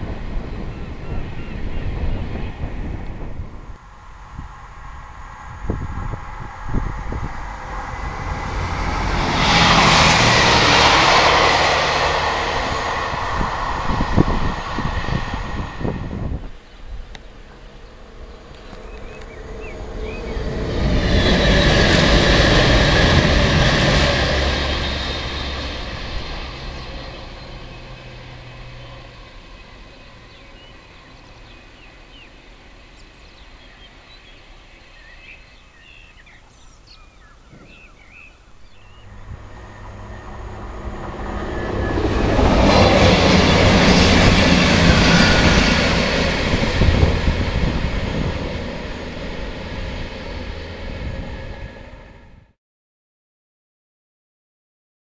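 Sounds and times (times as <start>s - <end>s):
diesel trains passing: 0.0s - 52.6s
wheel and track noise: 1.9s - 33.8s, 38.8s - 52.2s
birds chirping: 9.4s - 49.1s.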